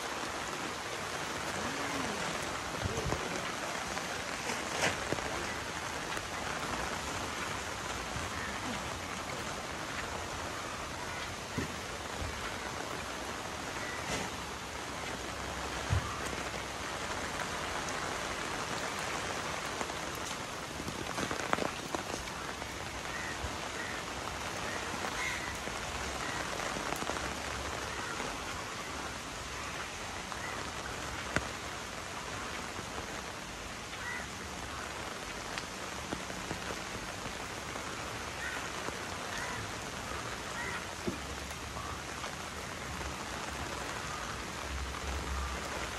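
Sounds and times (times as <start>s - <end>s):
rain hissing on wet road: 0.0s - 45.9s
raindrop taps: 0.6s - 13.0s, 15.0s - 28.6s, 40.6s - 42.3s.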